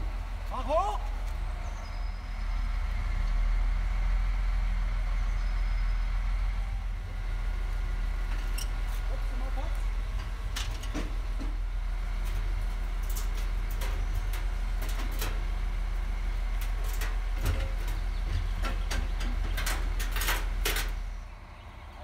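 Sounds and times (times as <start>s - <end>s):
engine humming: 0.0s - 22.0s
sharp clicks and knocks: 16.5s - 21.0s.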